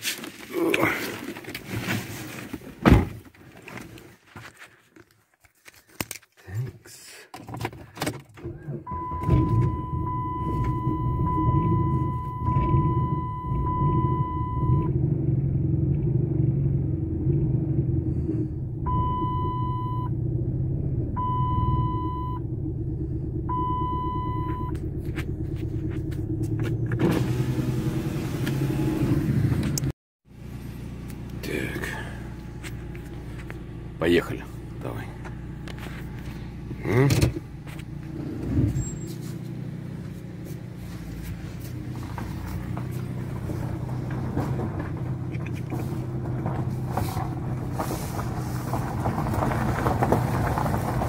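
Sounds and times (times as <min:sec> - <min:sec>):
car door shutting: 0:02.8 - 0:03.2, 0:08.0 - 0:13.2, 0:35.3 - 0:39.3
car engine starting and idling: 0:08.0 - 0:51.0
dashboard warning chime: 0:08.9 - 0:14.8, 0:21.2 - 0:22.4, 0:23.5 - 0:24.8.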